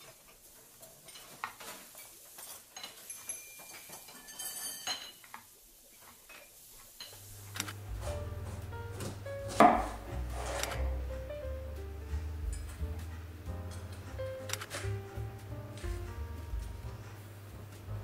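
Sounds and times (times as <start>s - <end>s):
dishes and cutlery clinking: 0.8s - 5.5s, 6.2s - 7.3s, 9.0s - 10.9s, 12.4s - 15.2s
low steady music bass: 7.8s - 18.0s.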